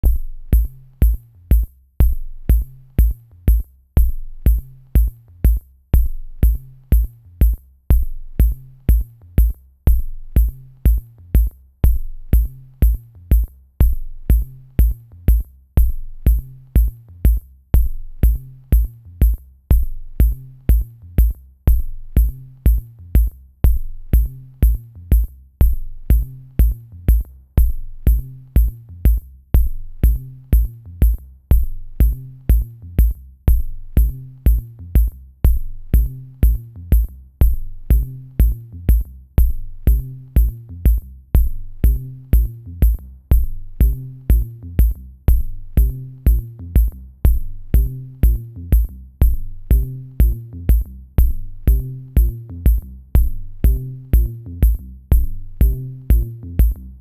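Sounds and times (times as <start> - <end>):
electronic music with drum-machine beat: 0.0 - 57.0.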